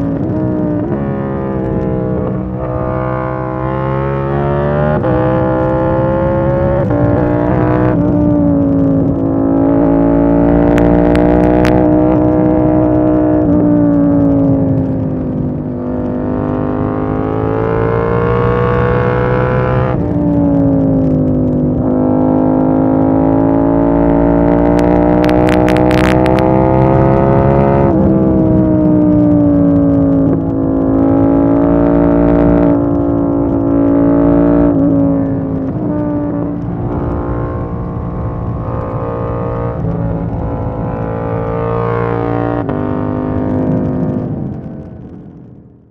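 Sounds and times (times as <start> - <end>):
motorcycle engine revving: 0.0 - 45.9
microphone crackles: 17.9 - 45.9.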